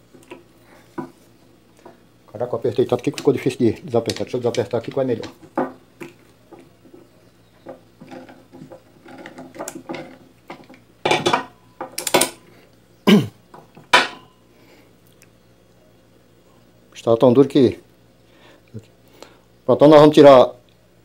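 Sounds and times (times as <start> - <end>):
pliers clicking and scraping metal: 11.9 - 12.4.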